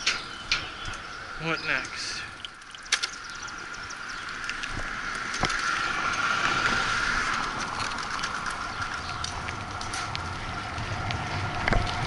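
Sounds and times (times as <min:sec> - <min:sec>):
bicycle rattles: 0:00.0 - 0:12.0
bicycle tyre noise: 0:00.0 - 0:12.0.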